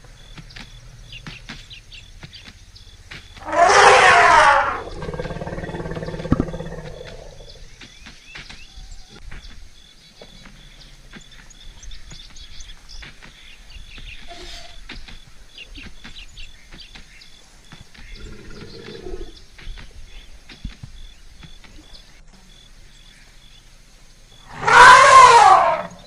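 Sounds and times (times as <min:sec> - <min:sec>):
birds chirping: 0:00.0 - 0:26.0
outdoor ambience: 0:00.0 - 0:26.0
low bird call: 0:03.2 - 0:09.6, 0:24.4 - 0:26.0.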